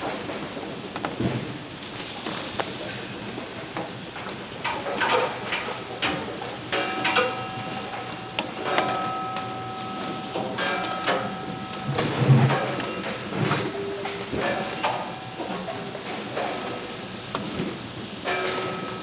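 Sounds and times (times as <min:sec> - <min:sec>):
conveyor mechanical clatter: 0:00.0 - 0:19.0
steady machine whine: 0:05.4 - 0:19.0.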